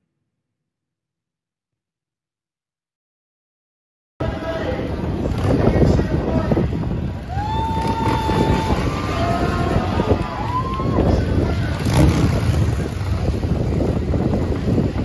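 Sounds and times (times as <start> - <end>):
motorcycle engines rumbling: 4.2 - 15.0.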